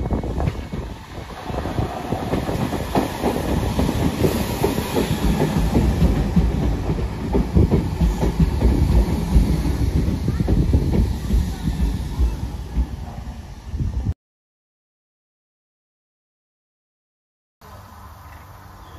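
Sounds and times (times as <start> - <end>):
train rumble: 0.0 - 14.2
train wheels clattering over joints: 1.7 - 13.2.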